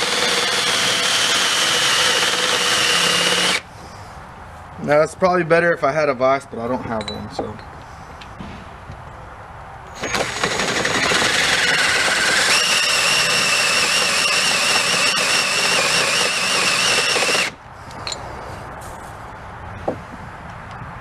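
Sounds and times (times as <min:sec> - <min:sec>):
drill boring into metal: 0:00.0 - 0:03.6, 0:10.0 - 0:17.6.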